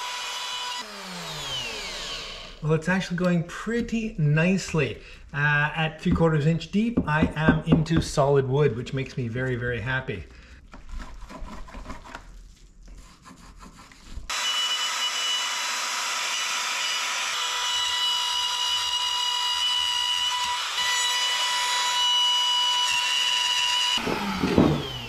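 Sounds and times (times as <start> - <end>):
router whining cutting wood: 0.0 - 2.6, 14.3 - 25.0.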